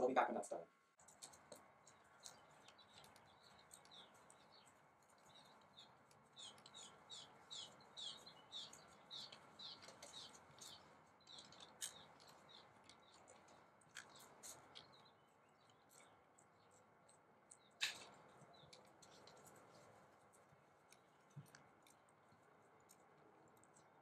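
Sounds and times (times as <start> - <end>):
songbird chirping: 0.0 - 24.0.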